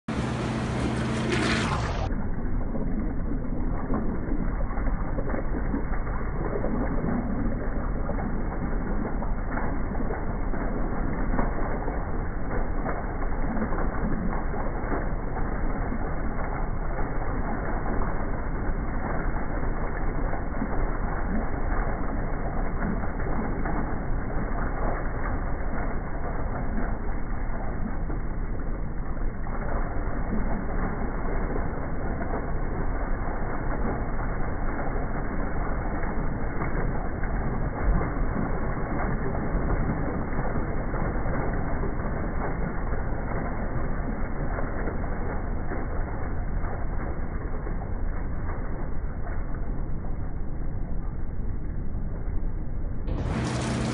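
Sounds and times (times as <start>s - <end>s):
toilet flushing: 0.1s - 11.9s, 53.2s - 53.9s.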